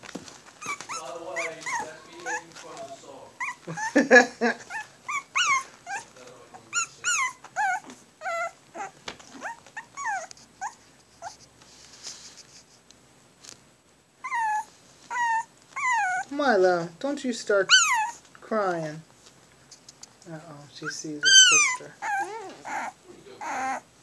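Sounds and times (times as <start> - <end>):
puppies whining: 0.3 - 11.4, 14.2 - 16.3, 17.6 - 18.3, 20.8 - 24.0.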